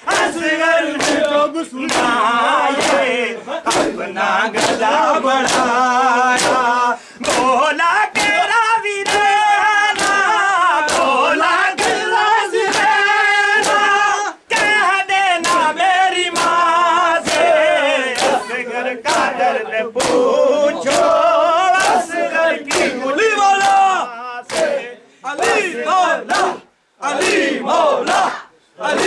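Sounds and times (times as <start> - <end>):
men singing a lament: 0.0 - 29.0
hands slapping chests: 0.1 - 11.2, 11.8 - 13.0, 13.6 - 19.4, 20.0 - 23.0, 24.5 - 24.8, 27.2 - 27.5.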